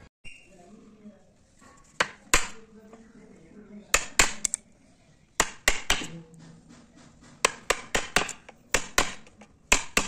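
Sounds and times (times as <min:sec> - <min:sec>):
chisel knocking into wood: 0:02.0 - 0:02.6, 0:03.9 - 0:04.5, 0:05.4 - 0:06.1, 0:07.4 - 0:10.0.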